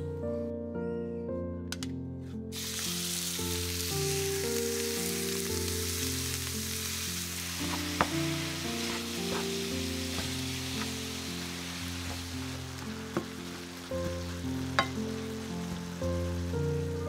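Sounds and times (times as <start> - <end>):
soft background music: 0.0 - 17.0
meat sizzling in a frying pan: 2.6 - 17.0.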